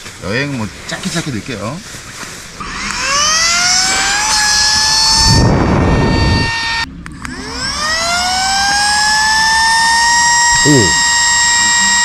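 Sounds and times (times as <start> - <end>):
electric air pump whine: 2.6 - 12.0
rush of air: 4.8 - 6.7.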